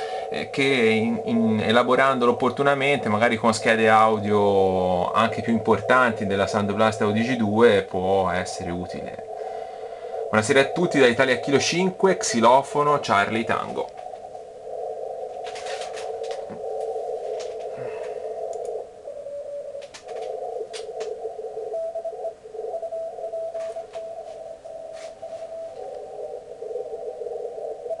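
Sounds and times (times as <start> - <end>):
morse code tones: 0.0 - 14.6, 15.2 - 28.0
radio band noise: 0.0 - 28.0.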